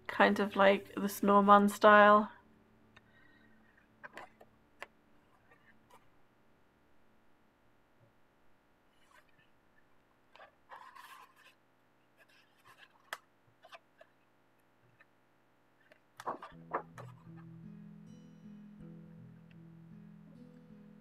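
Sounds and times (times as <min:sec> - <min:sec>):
soft background music: 0:00.0 - 0:06.6, 0:16.2 - 0:21.0
paper pages turning: 0:10.4 - 0:11.6, 0:12.2 - 0:14.1, 0:15.8 - 0:17.4.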